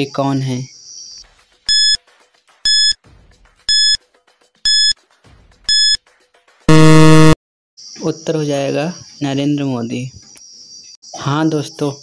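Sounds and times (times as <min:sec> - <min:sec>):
countdown timer beeps: 0:01.7 - 0:02.0, 0:02.7 - 0:03.0, 0:03.7 - 0:04.0, 0:04.7 - 0:05.0, 0:05.7 - 0:06.0, 0:06.7 - 0:07.4
loud long buzzer: 0:06.7 - 0:07.4.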